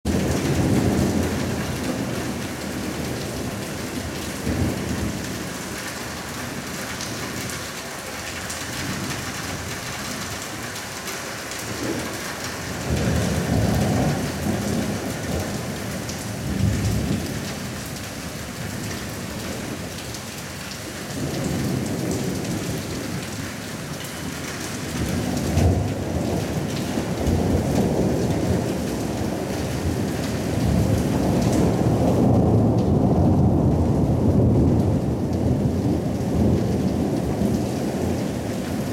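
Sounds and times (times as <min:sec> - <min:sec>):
steady rain: 0:00.1 - 0:38.9
thunder rumbling: 0:24.9 - 0:38.9.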